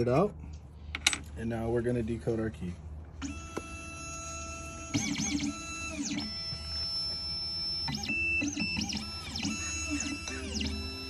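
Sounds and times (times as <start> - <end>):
stepper motors whining: 3.2 - 11.0.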